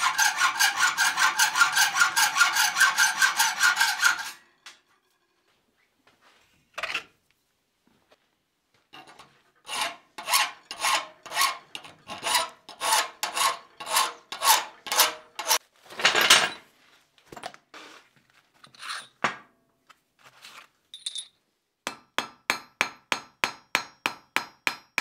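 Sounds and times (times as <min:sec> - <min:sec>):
file scraping steel: 0:00.0 - 0:05.3, 0:09.0 - 0:15.6.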